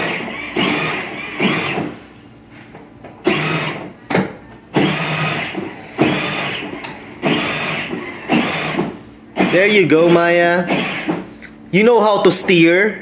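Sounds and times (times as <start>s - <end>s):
electric motor whining: 0.0s - 2.0s, 3.2s - 3.9s, 4.7s - 11.3s.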